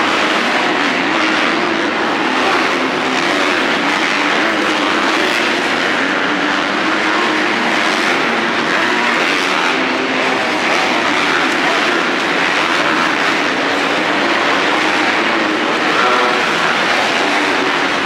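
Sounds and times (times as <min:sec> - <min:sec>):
dirt bike engines: 0:00.0 - 0:18.0.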